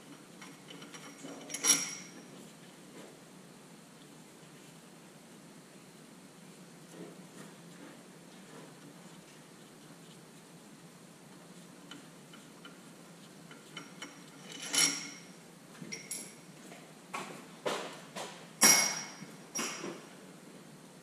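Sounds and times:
metal tools clinking and clanking: 0.4 - 2.3, 13.6 - 15.3, 15.9 - 16.4, 18.6 - 20.0.

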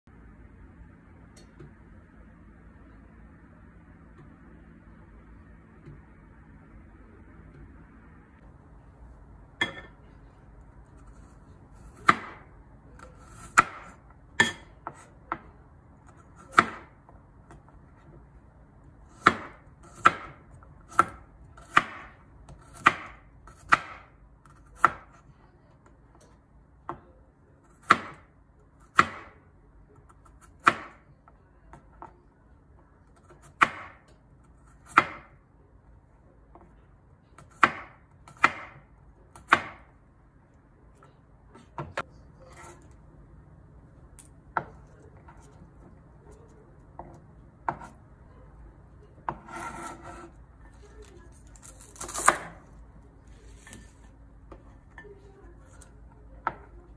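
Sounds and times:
knife chopping on wooden board: 11.9 - 12.5, 13.2 - 15.5, 16.4 - 16.9, 19.1 - 25.2, 28.9 - 29.3, 33.2 - 34.1, 34.7 - 35.3, 37.4 - 39.9, 47.0 - 48.0, 49.3 - 50.4.

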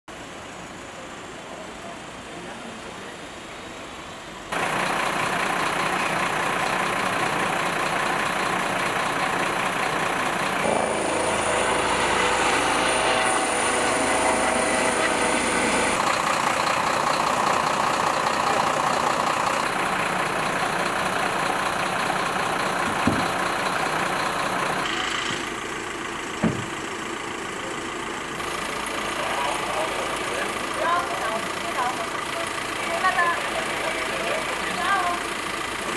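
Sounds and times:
vehicle engine: 0.1 - 35.9
helicopter turbine and rotor: 4.5 - 35.9
short sharp knocks: 26.4 - 26.7.

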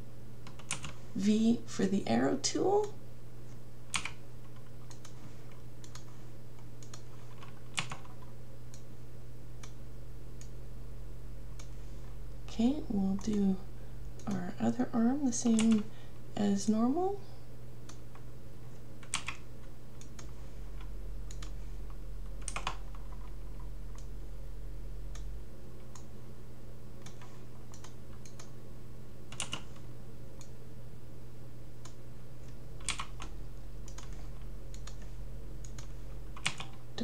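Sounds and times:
computer fan humming: 0.0 - 37.0
computer mouse clicks: 0.4 - 1.0, 2.8 - 8.9, 9.6 - 9.8, 11.6 - 11.8, 15.4 - 15.8, 17.8 - 24.1, 25.1 - 26.1, 27.0 - 28.6, 29.3 - 30.6, 31.8 - 36.8
keyboard key presses: 6.8 - 8.8, 19.0 - 19.4, 21.3 - 24.1, 29.3 - 29.8, 32.8 - 36.8.

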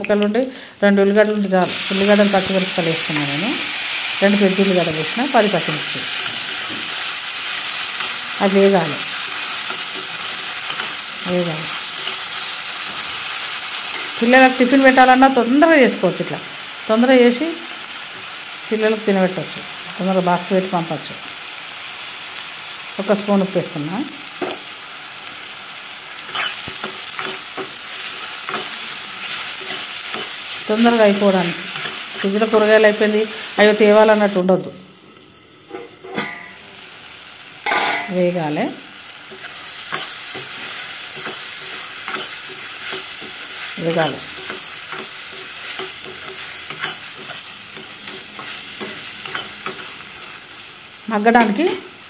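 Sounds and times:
vegetables sizzling in hot oil: 0.0 - 52.0
metal spoon scraping pan: 26.3 - 30.4, 39.3 - 50.0.

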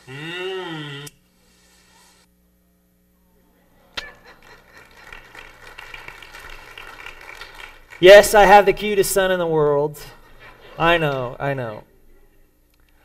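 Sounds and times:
voice holding a note: 0.0 - 1.2
low steady hum: 0.0 - 13.0.

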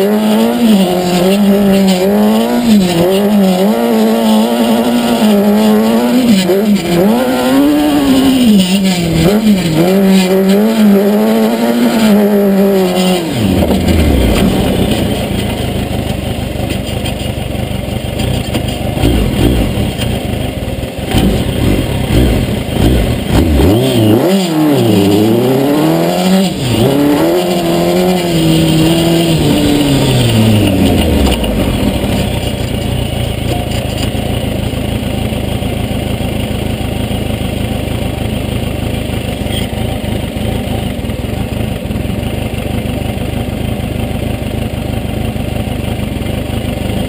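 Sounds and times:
motorcycle engine revving: 0.0 - 47.0.

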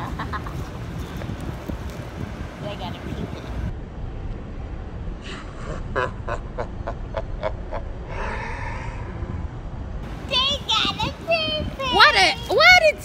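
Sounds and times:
woman laughing: 0.0 - 0.8.

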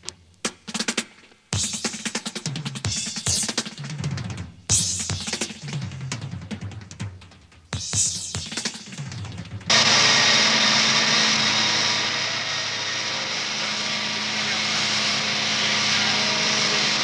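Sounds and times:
petrol engine running steadily: 9.7 - 17.0.

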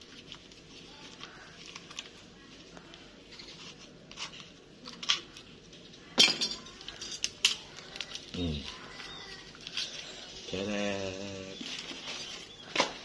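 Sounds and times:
paper rustling: 0.0 - 5.9, 11.6 - 13.0.

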